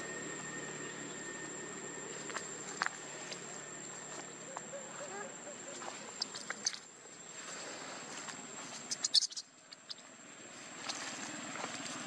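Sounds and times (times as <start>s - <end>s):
high-pitched insect drone: 0.0s - 7.6s.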